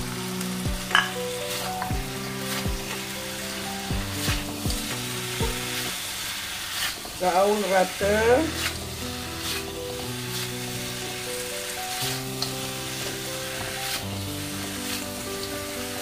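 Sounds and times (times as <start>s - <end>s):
chicken sizzling in a wok: 0.0s - 16.0s
spatula scraping a pan: 4.1s - 16.0s.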